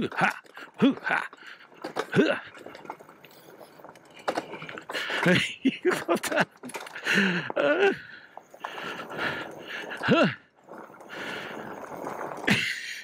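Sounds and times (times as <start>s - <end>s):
bike rattling over rocks: 0.0s - 13.0s
person grunting and shouting: 10.0s - 10.4s.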